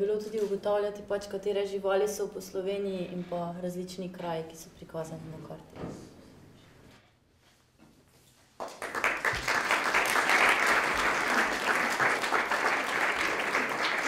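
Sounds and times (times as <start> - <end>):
audience applauding: 8.6 - 14.0.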